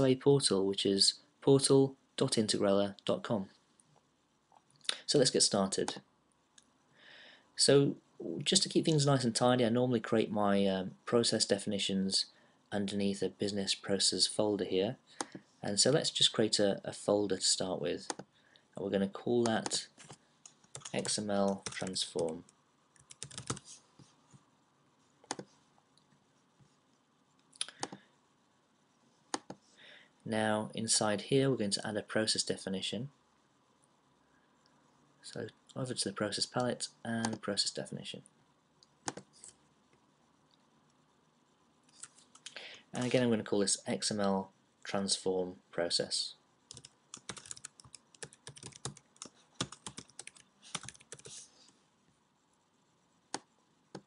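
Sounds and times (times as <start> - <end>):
computer keyboard keystrokes: 19.5 - 22.3, 23.0 - 23.6, 25.3 - 25.5, 39.1 - 39.3, 46.7 - 51.3.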